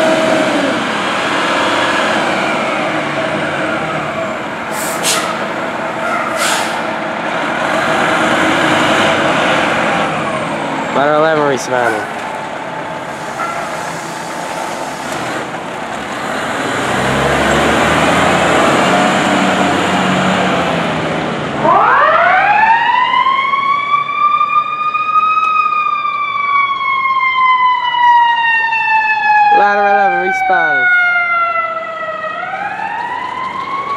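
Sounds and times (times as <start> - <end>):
fire truck engine running: 0.0 - 29.6, 30.7 - 33.9
siren winding up and down: 21.6 - 33.9.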